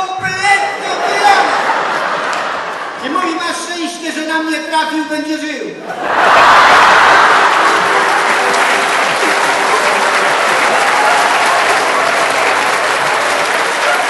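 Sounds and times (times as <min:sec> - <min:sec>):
audience applauding: 0:01.3 - 0:03.0, 0:06.0 - 0:14.0.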